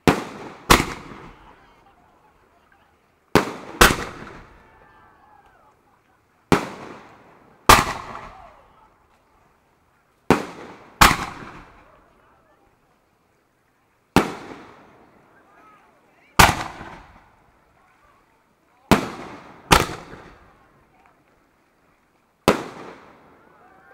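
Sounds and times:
firework bangs with echo: 0.0s - 1.6s, 3.4s - 4.6s, 6.5s - 8.6s, 10.3s - 11.9s, 14.2s - 14.9s, 16.4s - 17.4s, 18.9s - 20.5s, 22.4s - 23.2s.

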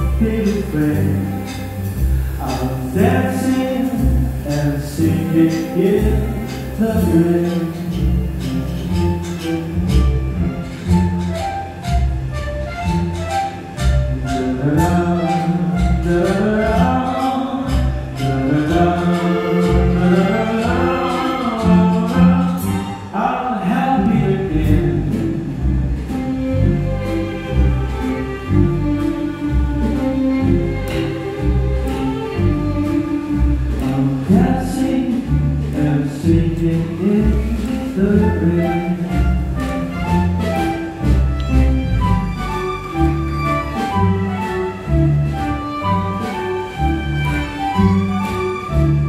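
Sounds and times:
flute melody: 0.0s - 23.3s, 36.5s - 49.0s
bowed strings: 0.0s - 49.0s
grand piano: 0.0s - 49.0s
live band playing: 0.0s - 49.0s.

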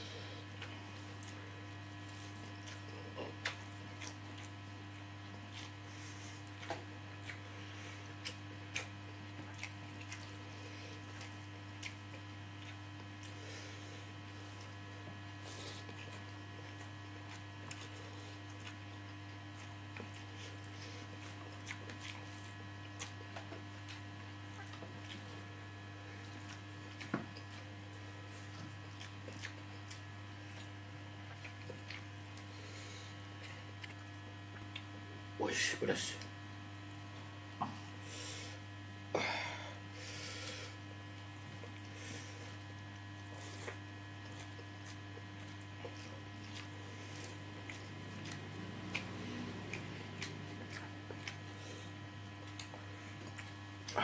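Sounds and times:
low electrical hum: 0.0s - 54.0s
chewing clicks and smacks: 2.4s - 13.4s, 15.8s - 25.5s, 26.1s - 32.5s, 33.3s - 35.0s, 41.5s - 54.0s.

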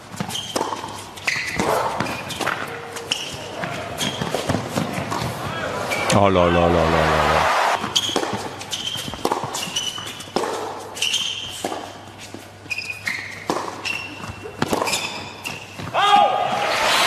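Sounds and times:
shoes squeaking on court: 0.0s - 6.2s, 7.8s - 16.0s
racket hitting tennis ball: 0.1s - 5.5s, 7.8s - 12.0s, 13.4s - 15.2s
tennis ball bouncing: 0.1s - 5.5s, 7.8s - 12.0s, 13.3s - 15.2s.

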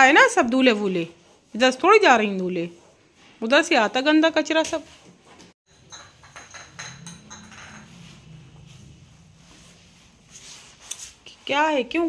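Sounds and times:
bowl clinking on tiled floor: 5.7s - 8.4s.

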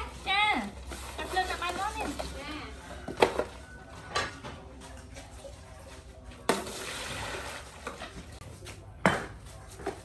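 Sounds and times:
water poured into metal basin: 6.5s - 8.1s.

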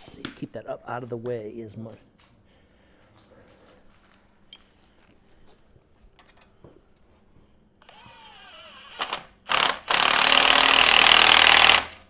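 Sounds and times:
impact driver motor whining: 7.8s - 12.0s
impact driver hammering: 9.0s - 12.0s.

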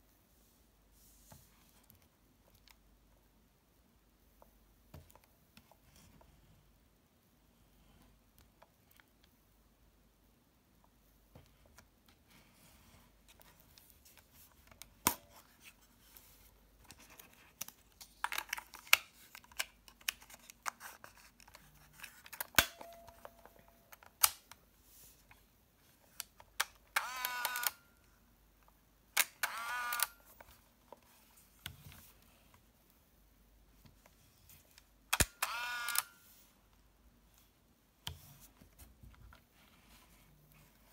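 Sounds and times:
plastic camera clicks and snaps: 22.0s - 23.3s, 23.9s - 24.6s, 26.2s - 27.8s, 29.2s - 30.5s, 35.1s - 36.2s.

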